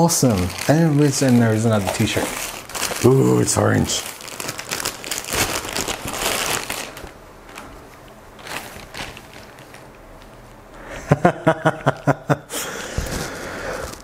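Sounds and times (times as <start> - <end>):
plastic bag crinkling: 0.0 - 10.7, 13.0 - 14.0
shirt rustling: 3.8 - 10.5.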